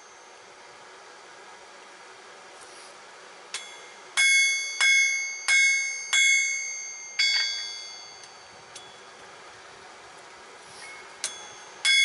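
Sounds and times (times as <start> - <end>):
hammer striking anvil: 3.6 - 8.5, 11.2 - 12.0
anvil ringing: 3.6 - 9.0, 11.2 - 12.0.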